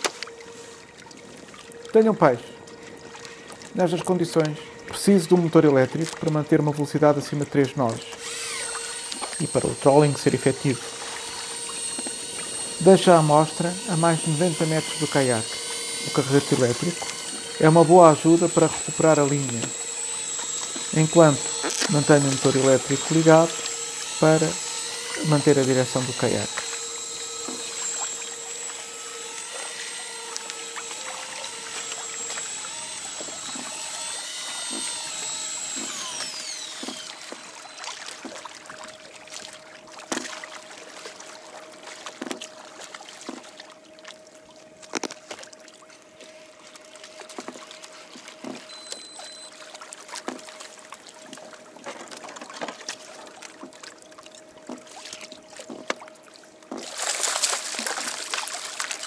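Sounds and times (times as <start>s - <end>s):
electric fishing reel whining: 0.0s - 41.5s, 46.3s - 51.4s
low steady hum: 0.0s - 59.0s
water splashing and lapping: 0.0s - 59.0s.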